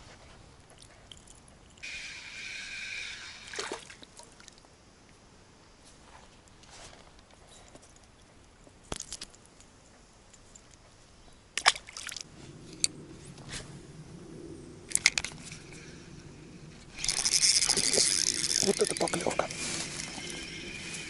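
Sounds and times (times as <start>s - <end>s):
fishing reel whirring: 1.8s - 3.8s, 14.9s - 21.0s
fishing reel clicks: 16.9s - 20.7s.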